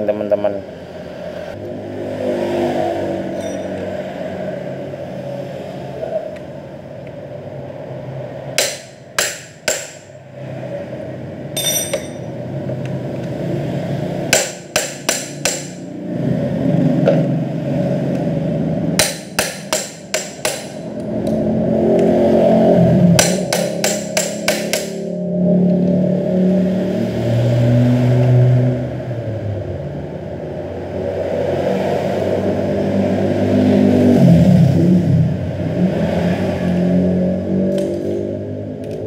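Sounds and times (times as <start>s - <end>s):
hammer striking metal: 3.4s - 3.8s, 8.6s - 10.2s, 11.6s - 12.3s, 14.3s - 15.9s, 19.0s - 21.0s, 23.1s - 25.1s.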